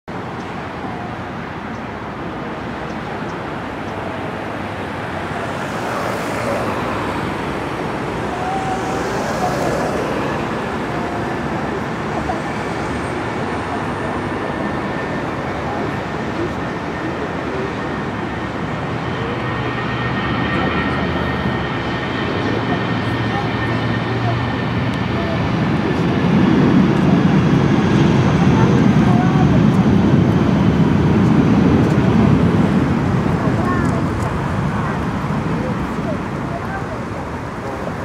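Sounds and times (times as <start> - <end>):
high engine whine: 0.1 - 38.0
jet engines roaring: 0.1 - 38.0.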